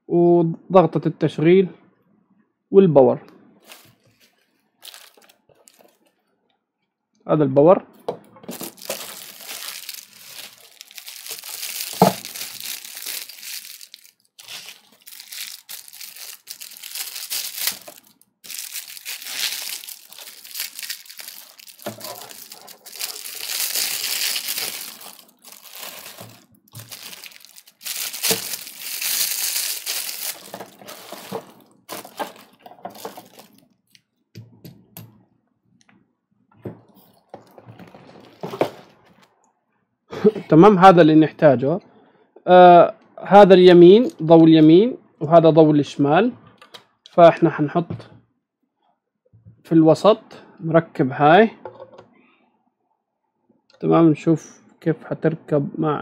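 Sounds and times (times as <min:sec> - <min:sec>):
plastic packaging crinkling: 0:03.7 - 0:06.0, 0:08.5 - 0:33.7.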